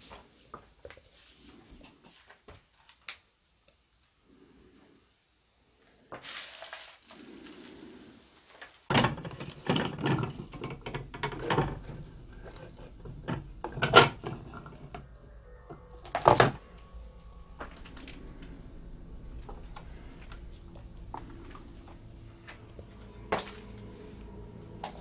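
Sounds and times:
plastic containers clattering: 8.9 - 15.1.

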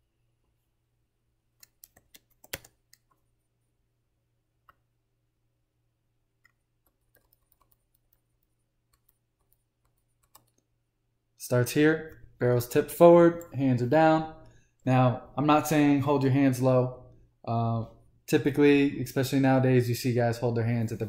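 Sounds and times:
mouse and keyboard clicks: 1.6 - 3.2, 6.4 - 10.7.

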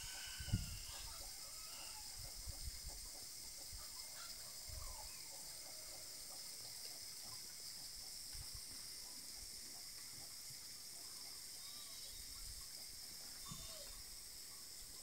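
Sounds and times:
faint bird calls: 0.0 - 2.7, 11.0 - 15.0
steady high hiss: 0.0 - 15.0.

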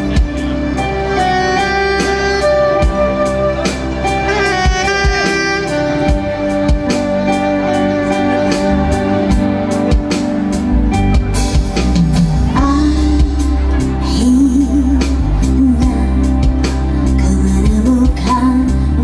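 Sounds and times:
live band music: 0.0 - 19.0
woman singing: 12.5 - 19.0.

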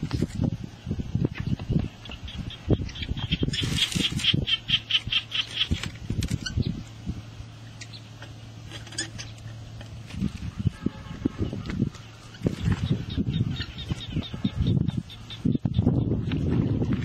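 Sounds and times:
bird squawking calls: 2.0 - 6.7, 10.2 - 16.2.

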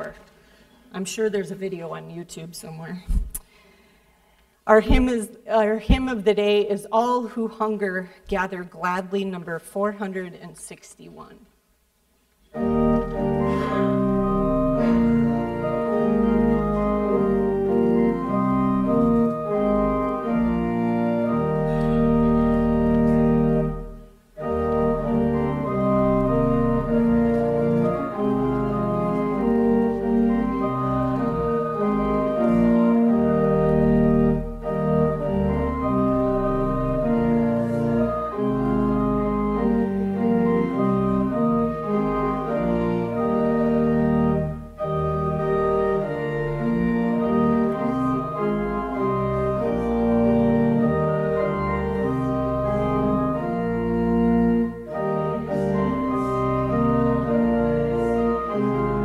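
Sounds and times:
church organ playing a hymn: 0.0 - 0.6, 12.5 - 59.0.

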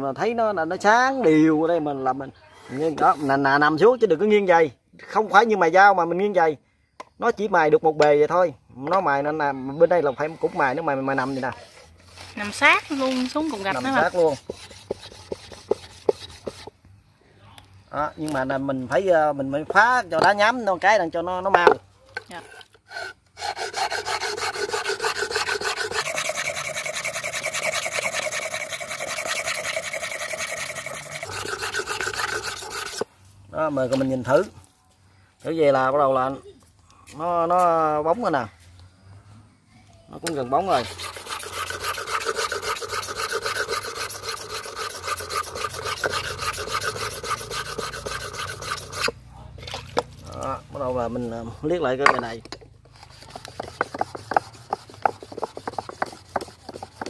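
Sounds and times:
blade scraping on sharpening stone: 11.3 - 16.7, 22.5 - 33.1, 40.6 - 49.2.

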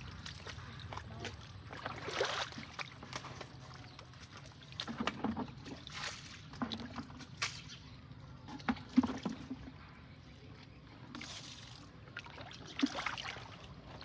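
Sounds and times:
boots splashing in muddy water: 0.0 - 7.9, 11.2 - 14.0.

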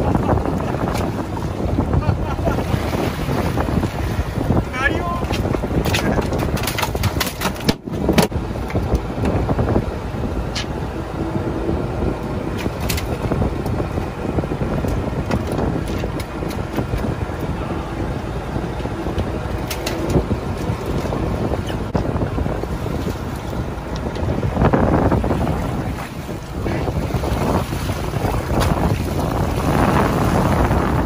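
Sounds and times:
boat rumble: 0.0 - 31.0
wind on microphone: 0.0 - 31.0
fish slapping on boat deck: 5.2 - 9.3, 12.5 - 13.8, 25.4 - 30.4.

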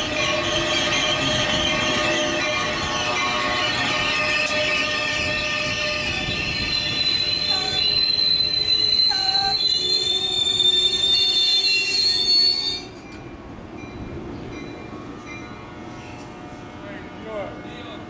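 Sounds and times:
train brakes squealing: 0.0 - 13.2
low rumble of train cars: 0.0 - 18.0
short lower squeaks: 6.6 - 12.9.

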